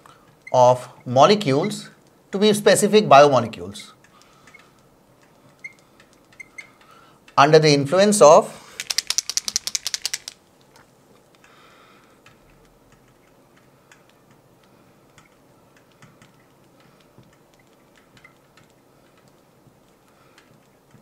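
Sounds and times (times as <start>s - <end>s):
marker mixing ball rattling: 8.7s - 10.8s.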